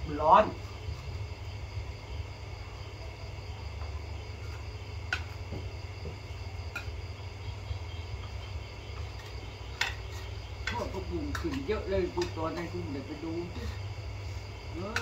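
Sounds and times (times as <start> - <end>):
crickets chirring: 0.0 - 15.0.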